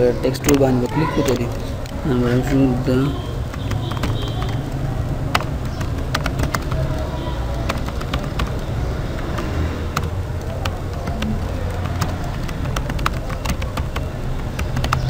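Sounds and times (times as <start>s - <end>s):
keyboard key clicks: 0.2s - 15.0s.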